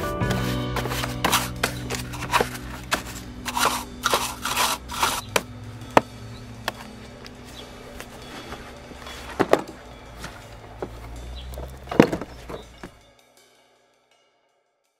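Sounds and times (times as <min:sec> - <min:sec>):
scraping and clicking strokes: 0:00.3 - 0:05.5
low steady hum: 0:00.5 - 0:13.0.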